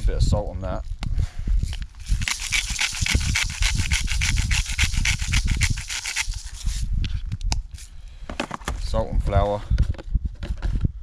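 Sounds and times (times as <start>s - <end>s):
salt grinder crunching: 1.7s - 6.9s.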